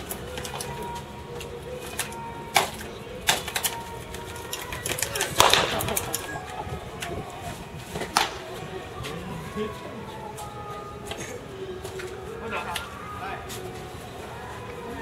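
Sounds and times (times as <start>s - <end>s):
baseballs smacking into leather mitts: 1.8s - 6.2s, 8.0s - 8.6s.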